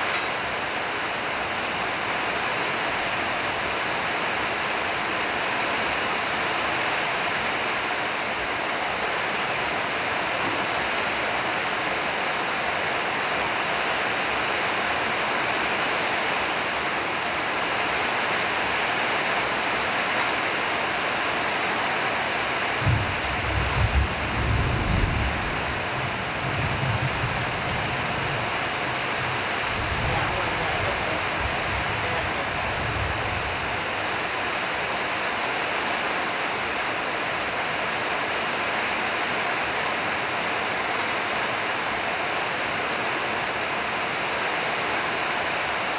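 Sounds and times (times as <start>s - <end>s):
steady rushing noise: 22.7s - 37.5s.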